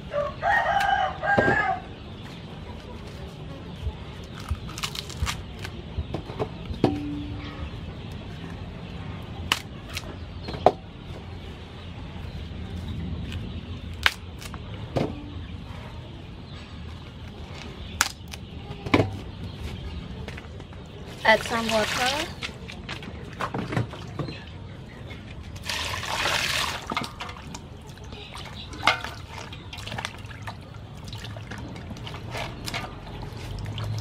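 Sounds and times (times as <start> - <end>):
corn husks snapping: 4.4 - 5.8, 9.5 - 10.1, 13.9 - 14.6, 18.0 - 18.4.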